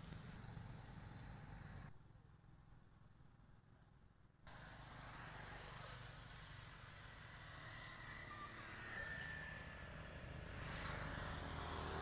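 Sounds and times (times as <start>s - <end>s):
high-pitched insect drone: 5.6s - 11.1s.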